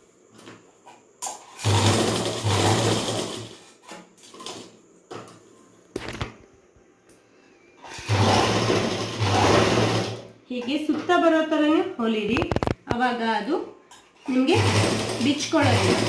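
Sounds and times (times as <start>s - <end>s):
sewing machine stitching: 1.4s - 3.8s, 7.8s - 10.3s, 14.2s - 16.0s.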